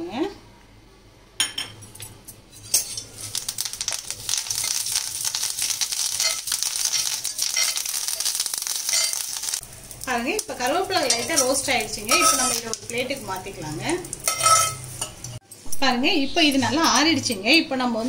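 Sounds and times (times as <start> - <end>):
leaves sizzling in hot oil: 2.6 - 15.4.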